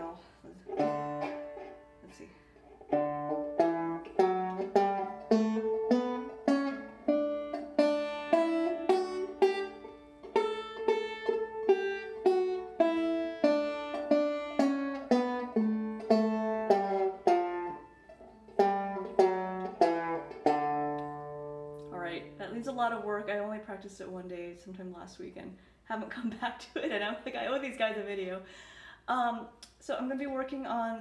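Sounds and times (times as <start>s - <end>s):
banjo picking single notes: 0.0s - 23.0s.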